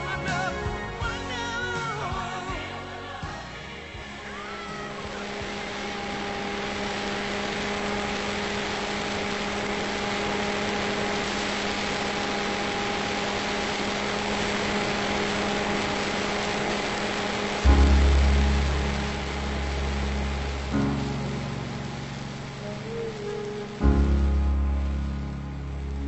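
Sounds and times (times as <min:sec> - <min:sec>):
music: 0:00.0 - 0:11.2, 0:14.0 - 0:26.0
rush of airflow: 0:04.1 - 0:26.0
model airplane motor drone: 0:04.2 - 0:21.1.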